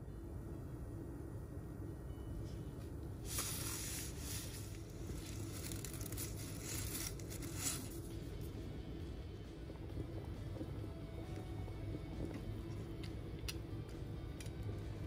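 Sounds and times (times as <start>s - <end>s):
water boiling in a pot: 0.0s - 15.0s
crackly hiss of pasta in water: 3.2s - 8.5s.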